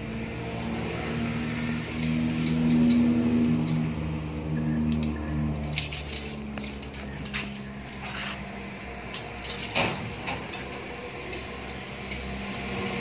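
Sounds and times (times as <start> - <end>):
metal tubing clinks and taps: 4.9 - 13.0.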